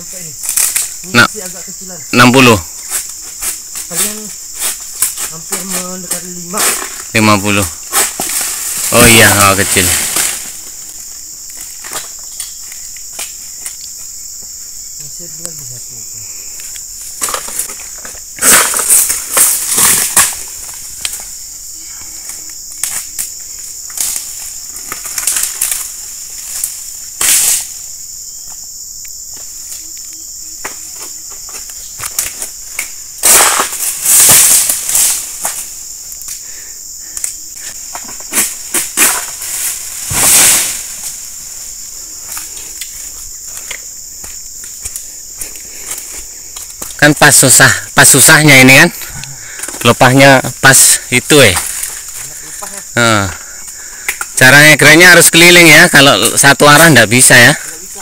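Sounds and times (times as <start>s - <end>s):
insects chirring: 0.0s - 58.0s
palm fronds crashing through leaves: 7.9s - 10.6s, 18.4s - 20.4s, 33.2s - 35.8s, 38.3s - 41.3s.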